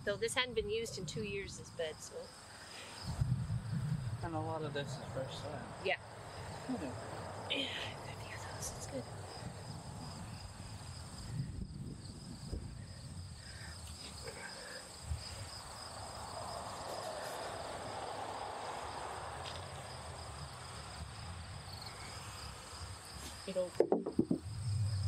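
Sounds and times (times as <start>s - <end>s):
insects chirping: 0.0s - 25.0s
low rumble: 24.4s - 25.0s.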